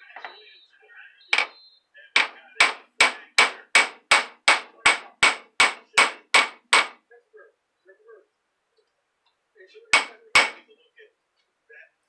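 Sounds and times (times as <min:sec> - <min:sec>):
hammer striking metal: 0:02.2 - 0:07.0, 0:10.0 - 0:10.6.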